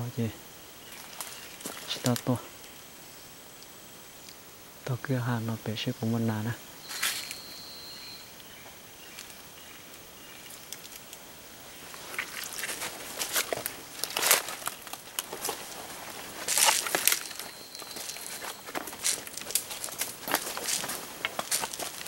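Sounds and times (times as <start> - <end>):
footsteps crunching through dry leaves: 0.8 - 2.4, 6.8 - 7.6, 11.6 - 22.0
brush rustling: 0.8 - 2.8, 6.3 - 22.0.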